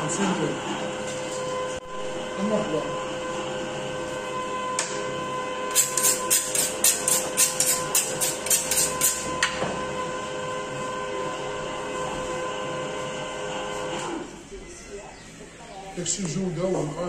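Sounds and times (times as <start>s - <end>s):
knife honed on sharpening steel: 5.7s - 9.2s.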